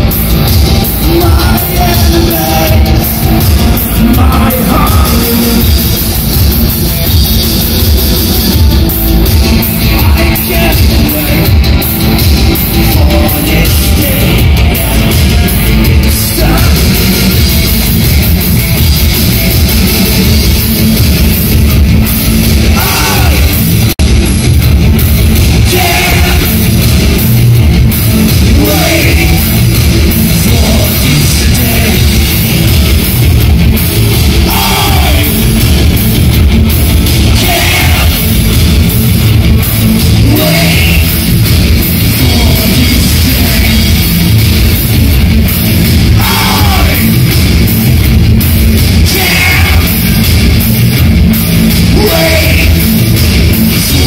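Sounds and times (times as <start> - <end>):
rock band playing: 0.0 - 54.0
person singing: 0.8 - 5.8, 9.7 - 11.6, 12.6 - 17.4, 22.7 - 23.6, 25.5 - 26.7, 28.1 - 29.8, 34.4 - 35.6, 37.3 - 38.4, 40.2 - 41.3, 46.2 - 47.2, 49.0 - 50.2, 51.8 - 53.0.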